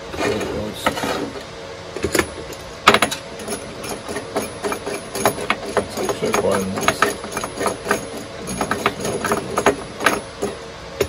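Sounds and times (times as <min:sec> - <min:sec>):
tools knocking on wooden workbench: 0:02.0 - 0:03.2, 0:03.9 - 0:10.6.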